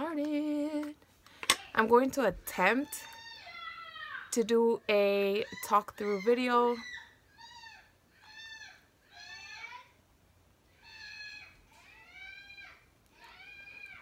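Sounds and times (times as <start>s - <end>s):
faint high-pitched cries: 2.9s - 4.4s, 5.4s - 10.0s, 10.7s - 14.0s.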